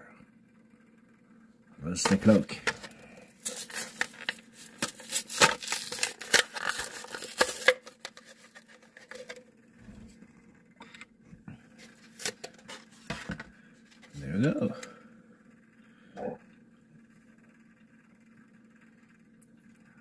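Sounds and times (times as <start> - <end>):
plastic packaging crackling: 2.0 - 9.4.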